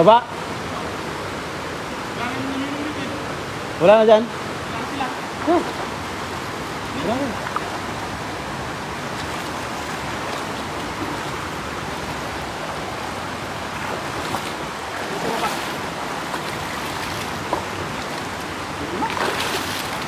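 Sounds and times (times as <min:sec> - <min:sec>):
shallow river flowing: 0:00.0 - 0:20.0
splashes of wading: 0:04.5 - 0:20.0.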